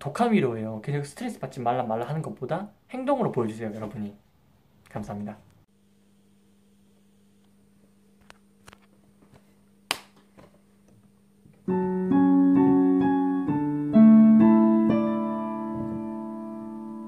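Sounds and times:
faint steady hum: 0.0 - 17.0
piano chords: 11.6 - 17.0.

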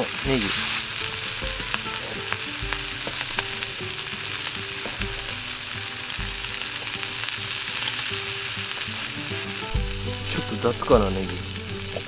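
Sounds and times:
sausages sizzling in a pan: 0.0 - 12.0.

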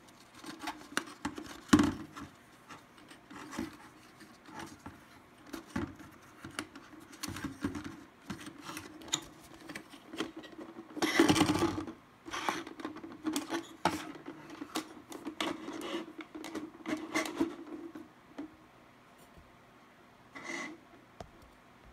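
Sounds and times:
cord rubbing on wood: 15.4 - 18.0.

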